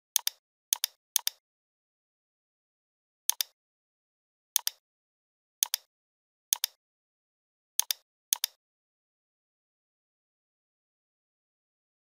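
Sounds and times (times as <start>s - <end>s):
computer mouse clicks: 0.1s - 1.4s, 3.3s - 3.6s, 4.6s - 4.8s, 5.6s - 5.9s, 6.5s - 6.8s, 7.8s - 8.6s.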